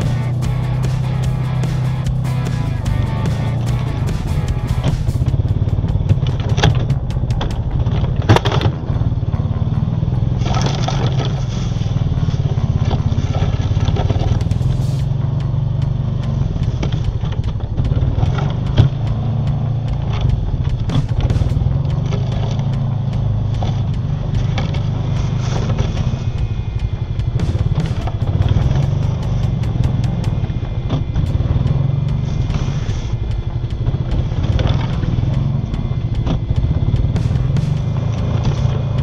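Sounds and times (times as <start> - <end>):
sharp knocks: 0.0 - 8.8, 15.8 - 39.0
atv engine running under load: 0.0 - 39.0
plow blade scraping through snow: 7.7 - 39.0.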